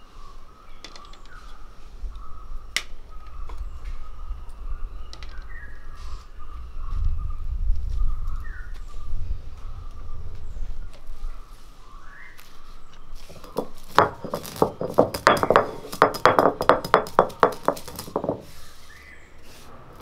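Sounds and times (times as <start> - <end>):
peppercorns cracking under stone: 13.3 - 18.5.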